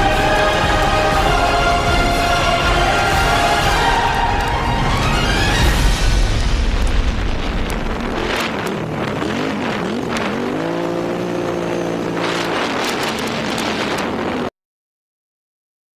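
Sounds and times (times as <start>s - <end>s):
rushing noise: 0.0s - 14.5s
scattered clicks: 6.3s - 14.2s
quad bike engine running: 7.7s - 14.5s.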